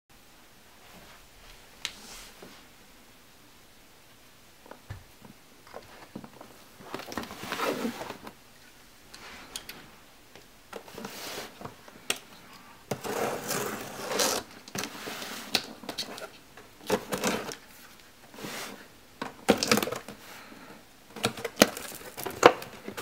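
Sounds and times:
cardboard box scraping on carpet: 7.3 - 8.2, 13.0 - 15.5.

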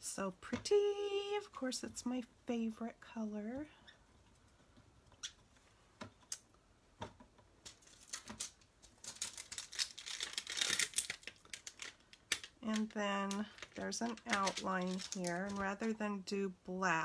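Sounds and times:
plastic packaging crinkling: 7.6 - 16.0.

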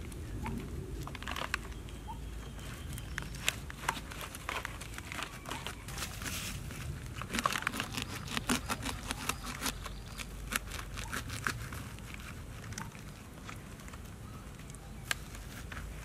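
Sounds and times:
stick scraping fruit flesh: 3.8 - 12.9.

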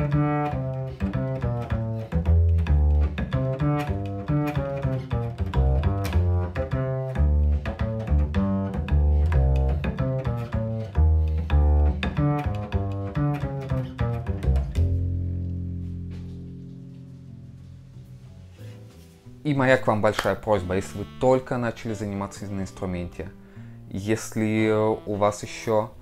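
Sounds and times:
double bass plucked pizzicato: 0.0 - 26.0.

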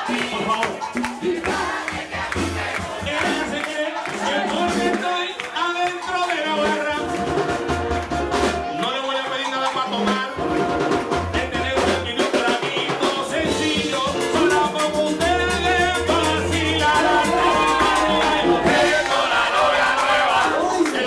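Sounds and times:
man singing into microphone: 0.0 - 1.6, 3.0 - 7.2, 8.8 - 10.4, 11.3 - 21.0
band percussion: 0.0 - 21.0.

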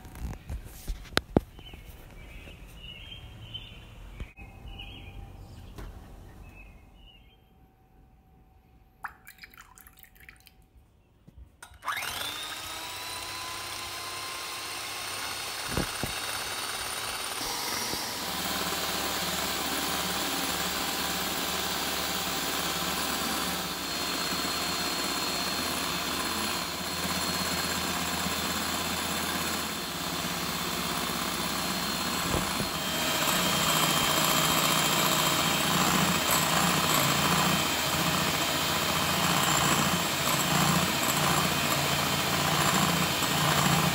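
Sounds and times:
electric hand mixer whirring: 11.6 - 43.9.

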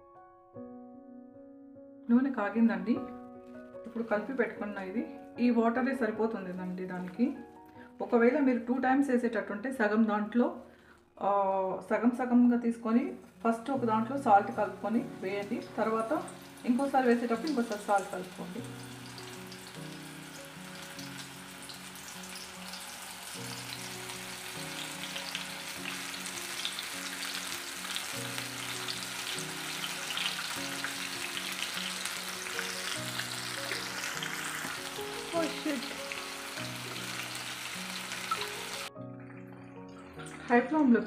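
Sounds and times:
batter deep-frying in hot oil: 14.1 - 38.9.

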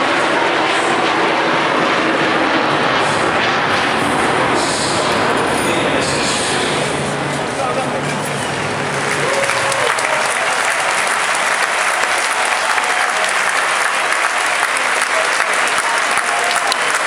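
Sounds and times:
scattered voices: 3.6 - 17.0
crowd applauding: 8.1 - 17.0.

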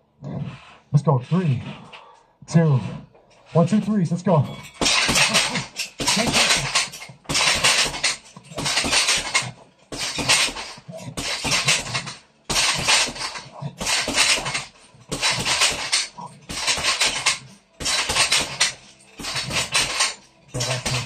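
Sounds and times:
chain rattling: 3.3 - 21.0
gloves punching heavy bag: 4.6 - 21.0.

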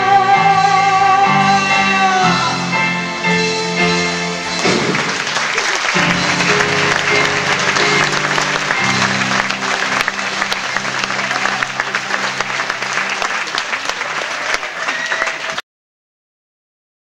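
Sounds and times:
sustained music chords: 1.8 - 13.9
audience applauding: 4.4 - 15.6.

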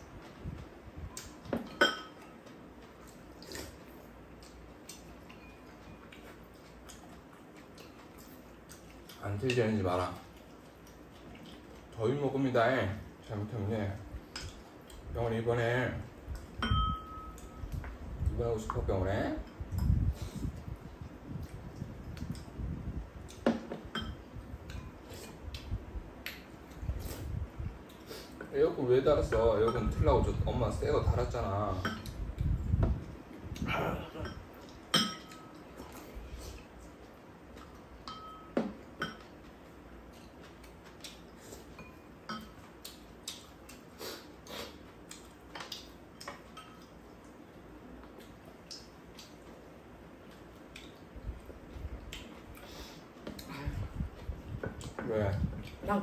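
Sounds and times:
spoons clinking against bowls: 1.7 - 2.4, 16.6 - 17.6, 23.9 - 24.2, 29.3 - 30.0, 34.2 - 35.6, 38.0 - 39.3, 41.7 - 42.6, 46.2 - 47.0.

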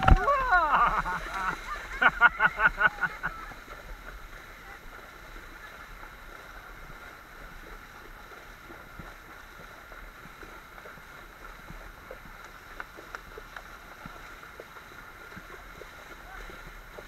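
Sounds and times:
horses splashing through water: 0.0 - 17.0
shallow river water rushing: 0.0 - 17.0.

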